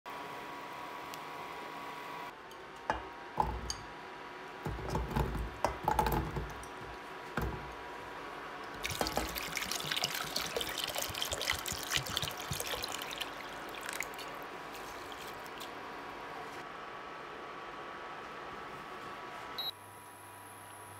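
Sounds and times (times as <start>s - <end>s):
water pouring into a pot: 8.8s - 15.8s.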